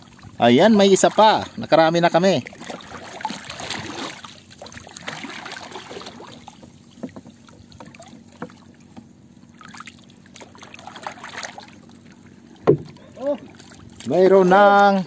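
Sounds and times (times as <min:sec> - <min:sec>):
water lapping and splashing: 0:00.0 - 0:15.0
small knocks: 0:06.5 - 0:09.1, 0:12.6 - 0:13.0.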